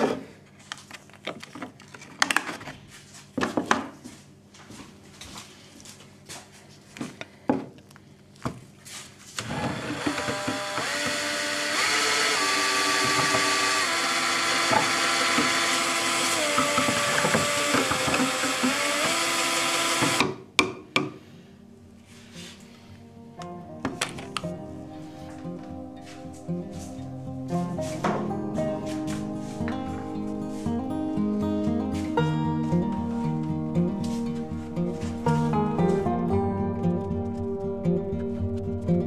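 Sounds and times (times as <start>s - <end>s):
cordless drill whining: 9.4s - 20.2s.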